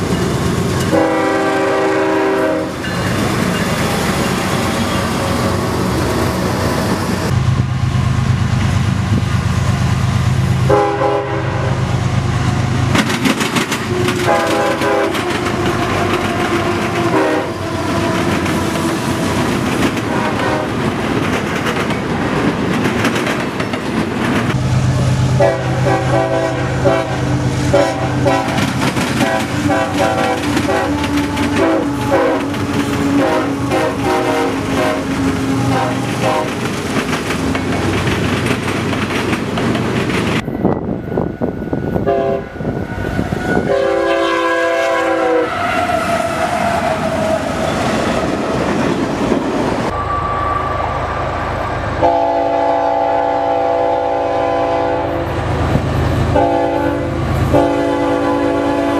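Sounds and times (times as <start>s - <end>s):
diesel engines rumbling: 0.0s - 58.9s
train air horn chord blasts: 0.9s - 2.8s, 10.6s - 11.9s, 13.8s - 19.0s, 20.1s - 20.8s, 25.2s - 36.6s, 42.0s - 42.7s, 43.4s - 46.0s, 52.0s - 55.4s, 56.3s - 58.9s
wheels clattering over rails: 12.9s - 17.2s, 17.8s - 24.6s, 28.2s - 33.7s, 34.6s - 40.4s.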